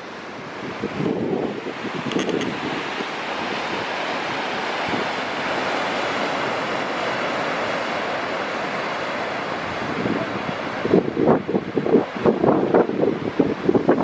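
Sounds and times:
surf rushing: 0.0s - 14.0s
wind buffeting microphone: 0.3s - 6.9s, 9.6s - 14.0s.

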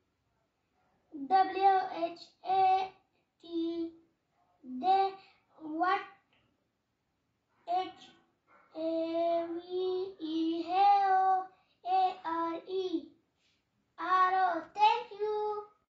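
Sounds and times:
boy chanting sing-song: 1.2s - 2.8s, 3.4s - 3.9s, 4.7s - 6.0s, 7.7s - 8.1s, 8.8s - 13.1s, 14.0s - 15.7s.

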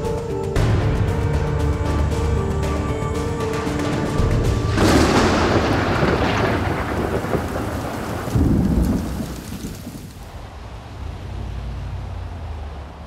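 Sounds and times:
thunder rumbling: 3.5s - 12.1s
rain: 3.6s - 13.0s.

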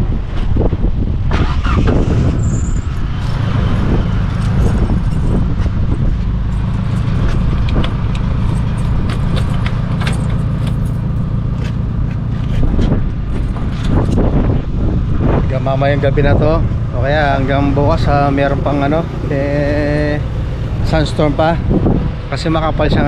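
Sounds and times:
wind buffeting microphone: 0.0s - 23.0s
sharp clicks and knocks: 6.5s - 14.3s.

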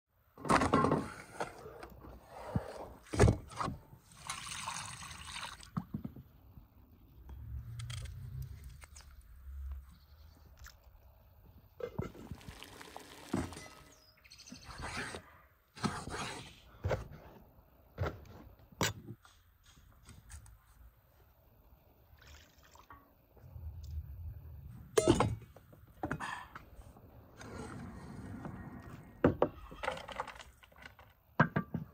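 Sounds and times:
water pouring into metal bowl: 4.1s - 5.7s, 12.2s - 13.9s.

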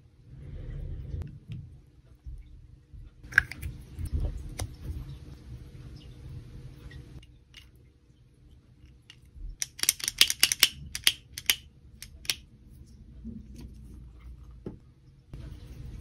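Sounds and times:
plastic toy parts clicking: 9.1s - 12.4s.

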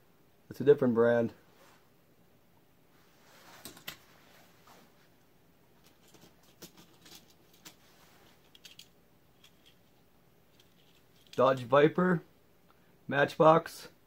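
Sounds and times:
toy cars clicking and rustling: 5.8s - 11.6s.

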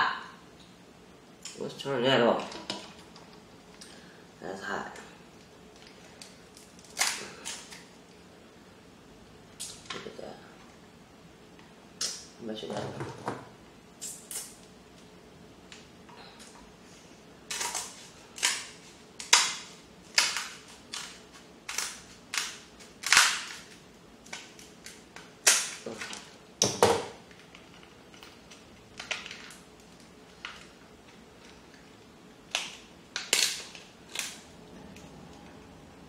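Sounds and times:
crab shells cracking: 5.8s - 7.9s, 17.5s - 26.2s, 32.4s - 34.4s.

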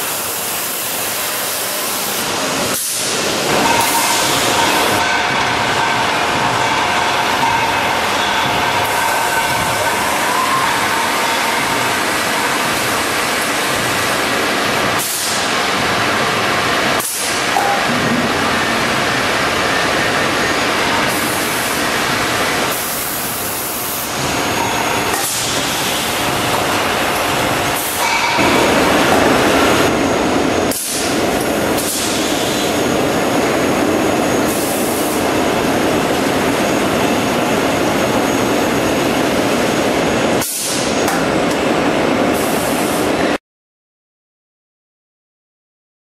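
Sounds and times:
packing machinery running: 2.2s - 40.4s.

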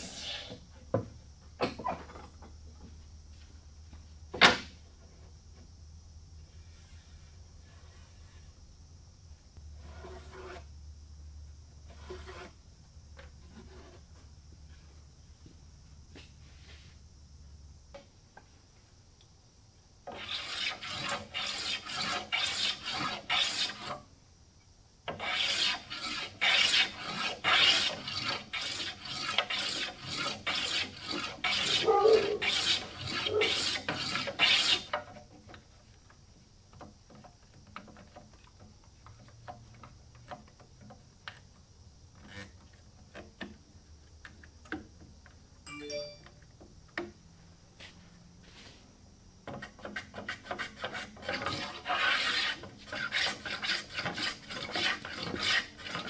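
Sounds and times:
hand plane shaving wood: 9.8s - 10.6s, 11.9s - 12.5s, 20.1s - 24.0s, 25.1s - 35.1s, 49.5s - 56.0s.

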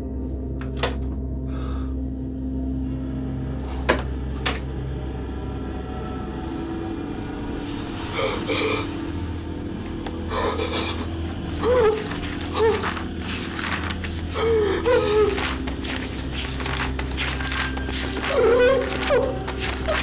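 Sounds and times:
low steady drone: 0.0s - 20.0s
rustling: 11.3s - 20.0s.

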